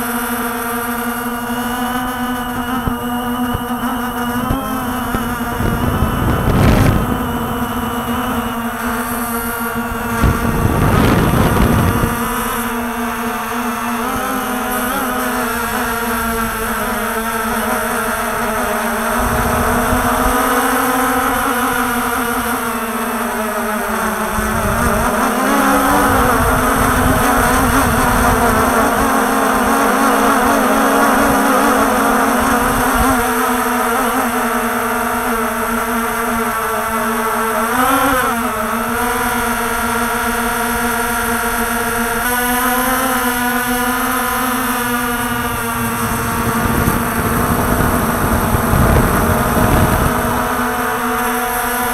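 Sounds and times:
drone motors whining: 0.0 - 51.9
wind rumbling on microphone: 1.6 - 23.0, 24.1 - 33.4, 43.2 - 51.9.

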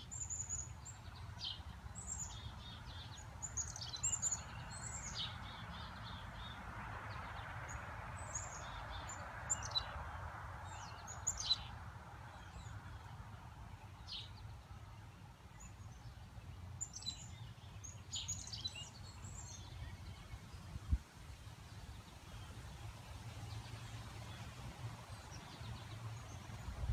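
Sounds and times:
songbirds chirping: 0.0 - 26.9
wind rushing in trees: 19.4 - 26.9.

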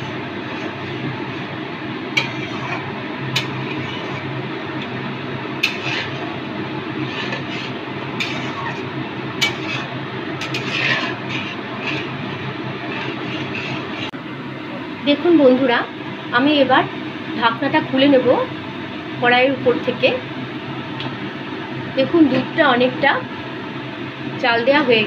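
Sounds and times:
metal spatula scraping pan: 0.0 - 1.5, 2.2 - 4.3, 5.6 - 14.2
steady low hum: 0.0 - 25.0.

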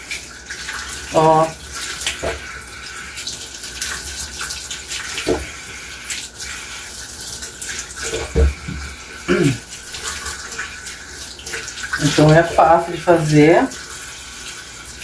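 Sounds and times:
tap running into steel sink: 5.2 - 5.5
dull knock: 8.3 - 8.9.

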